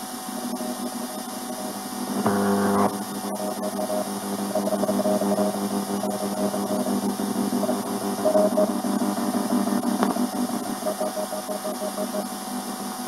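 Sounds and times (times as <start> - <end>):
radio static hiss: 0.3 - 12.3
low droning tones: 2.1 - 10.9.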